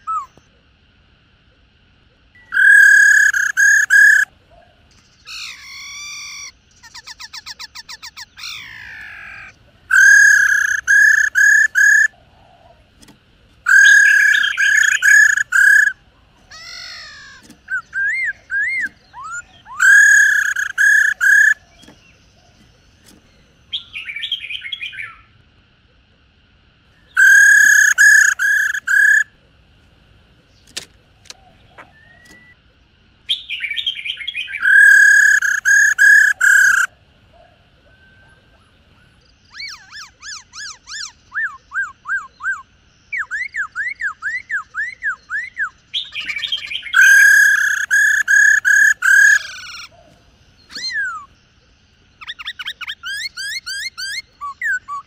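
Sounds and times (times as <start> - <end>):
whistled bird calls: 0.0 - 0.6, 2.2 - 12.9, 13.6 - 25.4, 26.9 - 29.4, 30.5 - 32.6, 33.3 - 55.0
bird rattling trill: 2.4 - 4.3, 5.3 - 12.2, 13.0 - 23.4, 27.2 - 29.3, 34.6 - 36.9, 46.0 - 49.9
scratchy bird churring: 2.4 - 23.5, 27.1 - 29.4, 34.6 - 36.9, 39.5 - 51.4, 52.2 - 55.0.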